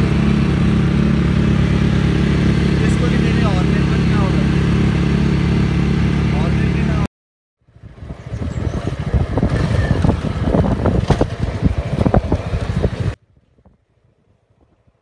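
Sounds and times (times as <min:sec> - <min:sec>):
wind buffeting microphone: 0:07.7 - 0:15.0.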